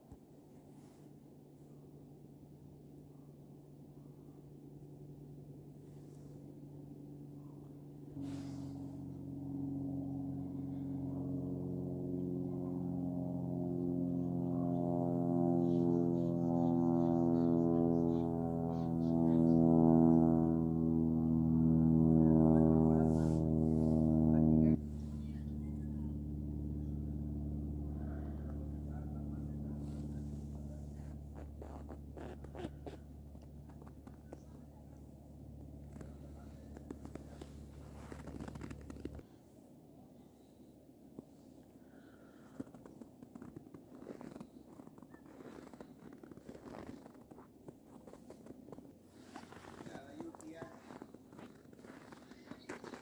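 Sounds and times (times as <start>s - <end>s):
low mechanical hum: 0.0s - 53.0s
ambient drone music: 8.1s - 34.8s.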